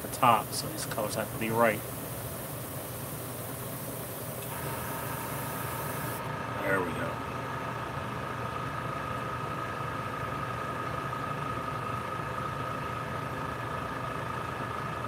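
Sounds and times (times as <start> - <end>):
small electric motor humming: 0.0 - 8.0
thin steady whine: 0.0 - 15.0.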